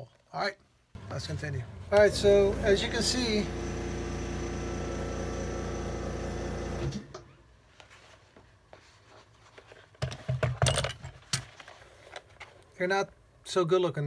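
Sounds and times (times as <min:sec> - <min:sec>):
electric motor running: 0:01.3 - 0:07.1.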